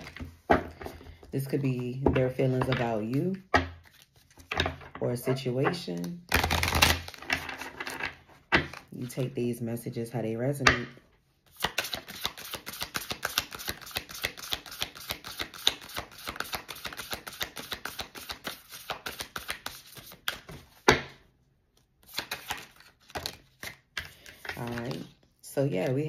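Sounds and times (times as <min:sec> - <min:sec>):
cards being shuffled: 0:00.0 - 0:04.8, 0:05.6 - 0:09.2, 0:11.5 - 0:20.8, 0:21.7 - 0:26.0.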